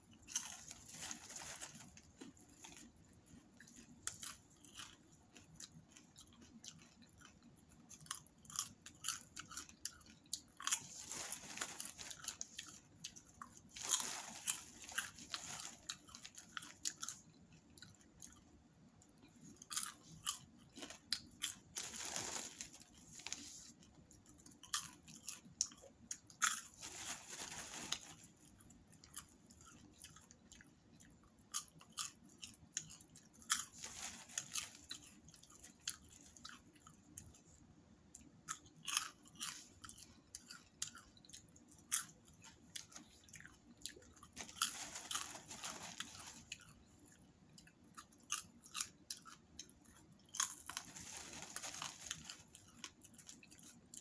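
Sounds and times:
popcorn being chewed: 0:00.0 - 0:54.0
plastic bag crinkling: 0:00.3 - 0:02.9, 0:10.6 - 0:17.2, 0:20.8 - 0:23.9, 0:26.4 - 0:28.5, 0:33.5 - 0:36.4, 0:44.2 - 0:46.8, 0:50.4 - 0:53.7.

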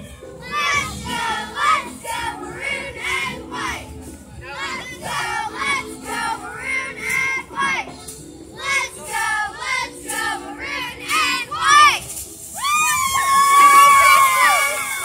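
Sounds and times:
girls chanting a cheer: 0:00.4 - 0:07.9, 0:08.6 - 0:12.1.

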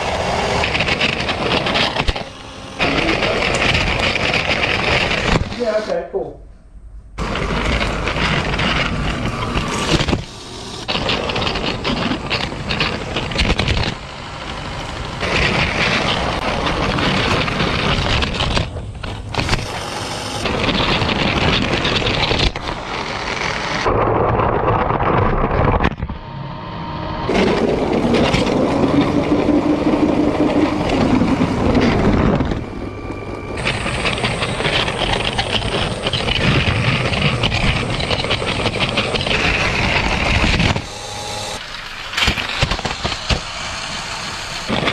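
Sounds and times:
toy train rattling on plastic track: 0:00.4 - 0:05.8, 0:07.2 - 0:23.8, 0:33.6 - 0:40.7, 0:41.6 - 0:44.9.

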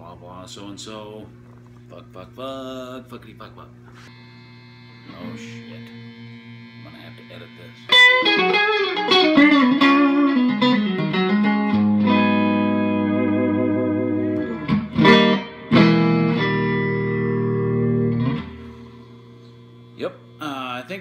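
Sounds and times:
electric guitar notes and chords: 0:05.0 - 0:20.4.

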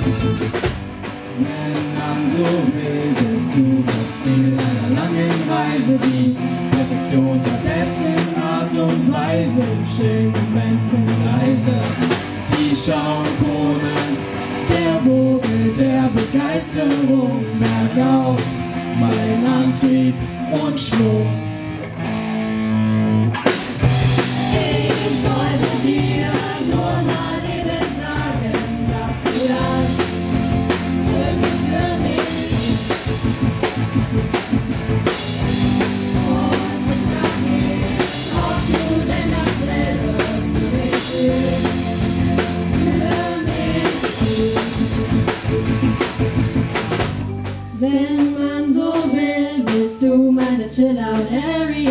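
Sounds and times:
drum kit: 0:00.0 - 0:22.1, 0:23.3 - 0:51.9
bass guitar: 0:00.0 - 0:51.9
electric guitars: 0:00.0 - 0:51.9
singers in unison: 0:01.3 - 0:18.4, 0:24.1 - 0:33.0, 0:35.4 - 0:45.0.

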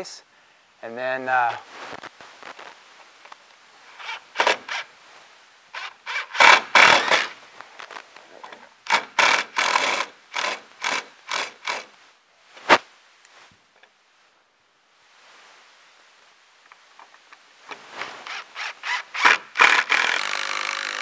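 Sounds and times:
cordless drill driving screws: 0:04.0 - 0:04.9, 0:05.8 - 0:07.4, 0:08.9 - 0:11.9, 0:18.2 - 0:21.0.

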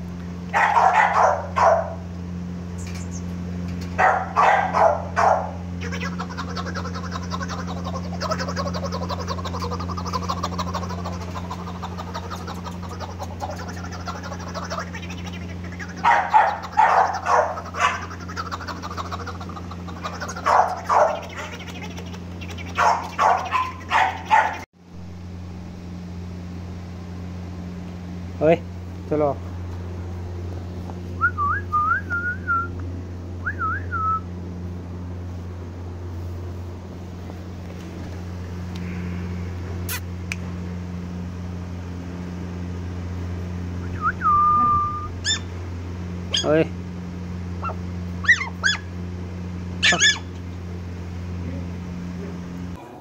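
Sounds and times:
steady low hum: 0:00.0 - 0:53.0
puppies yapping: 0:00.4 - 0:02.1, 0:02.8 - 0:24.7, 0:44.9 - 0:45.6, 0:46.2 - 0:46.6, 0:47.5 - 0:49.0, 0:49.8 - 0:50.5.

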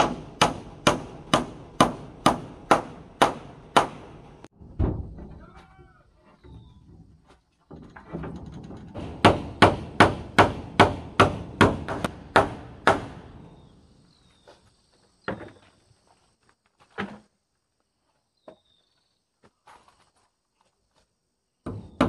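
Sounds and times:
hammer driving nail into wood: 0:00.0 - 0:04.1, 0:09.0 - 0:13.2
separate knocks: 0:00.0 - 0:13.3.

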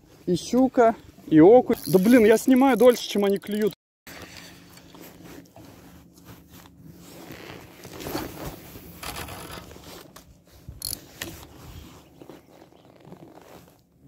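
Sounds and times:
fishing reel whirring and clicking: 0:01.7 - 0:03.8, 0:10.8 - 0:11.0.

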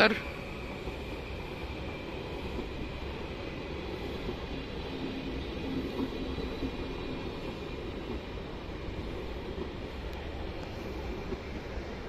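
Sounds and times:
train running rumble: 0:00.0 - 0:12.0.

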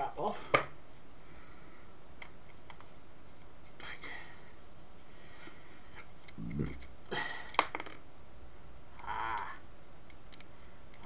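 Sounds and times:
faint clicks of motor parts: 0:09.0 - 0:11.0.

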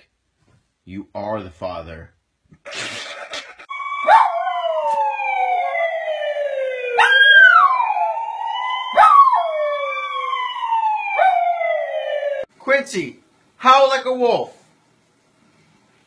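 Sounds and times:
emergency siren wailing: 0:03.7 - 0:12.5
dog howling: 0:07.0 - 0:08.2.

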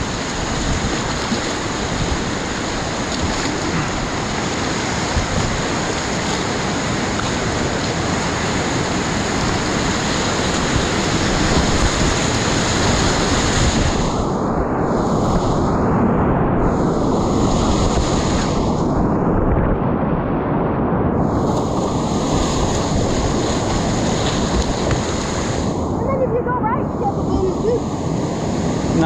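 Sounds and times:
river rapids rushing: 0:00.0 - 0:14.0.

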